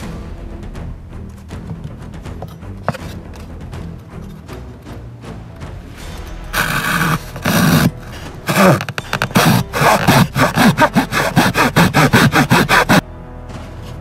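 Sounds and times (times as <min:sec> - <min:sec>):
handsaw cutting wooden board: 0:06.5 - 0:13.0.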